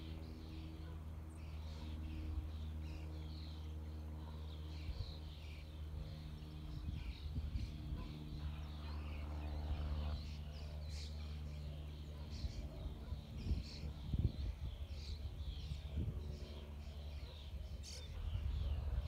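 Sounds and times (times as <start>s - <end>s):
small birds chirping: 0.0s - 19.0s
steady low hum: 0.0s - 19.0s.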